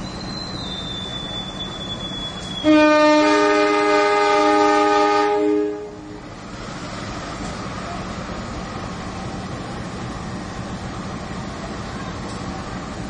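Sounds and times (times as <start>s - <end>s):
locomotive rumbling: 0.0s - 13.0s
locomotive horn chord: 2.6s - 6.2s.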